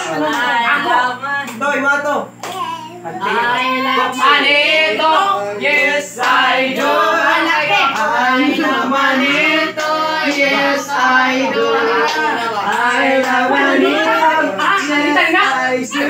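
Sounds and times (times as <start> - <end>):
steady low hum: 0.0 - 16.0
group chanting: 3.2 - 16.0.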